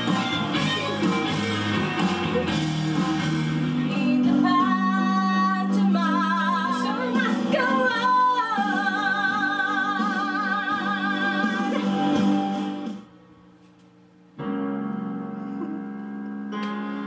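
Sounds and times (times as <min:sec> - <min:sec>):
recorded instrumental music: 0:00.0 - 0:17.0
woman singing with vibrato: 0:03.9 - 0:12.2.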